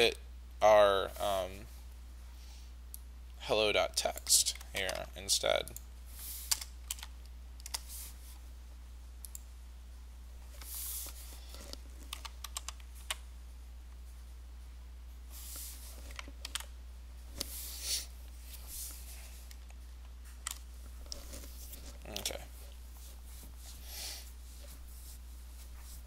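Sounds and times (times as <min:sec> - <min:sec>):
steady low hum: 0:00.0 - 0:26.0
computer keyboard typing: 0:06.5 - 0:07.9, 0:12.0 - 0:13.2, 0:16.1 - 0:16.7.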